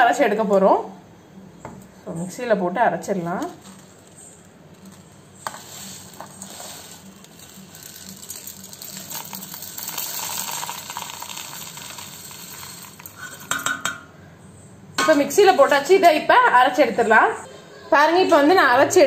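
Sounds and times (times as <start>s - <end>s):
seeds pattering on metal: 3.3s - 13.9s.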